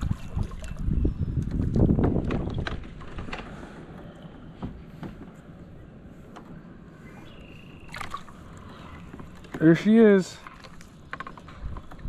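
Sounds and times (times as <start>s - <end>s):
water splashing: 0.0s - 0.9s, 7.8s - 11.1s.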